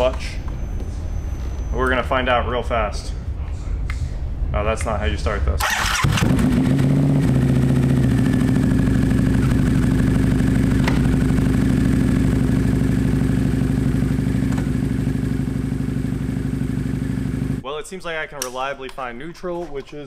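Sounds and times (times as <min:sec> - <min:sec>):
motorcycle engine idling: 0:05.7 - 0:17.6.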